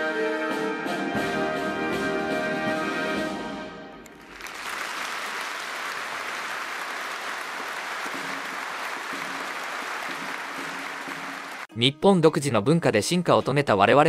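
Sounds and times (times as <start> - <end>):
large audience applauding: 4.0 - 11.7.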